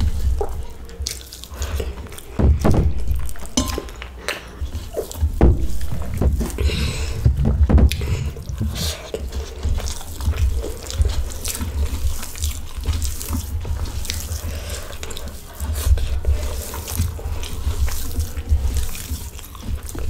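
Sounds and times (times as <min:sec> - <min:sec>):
chewing: 0:00.0 - 0:20.0
wet squishing of rice mixed by hand: 0:00.0 - 0:20.0
low uneven rumble: 0:02.3 - 0:04.1, 0:04.7 - 0:11.2.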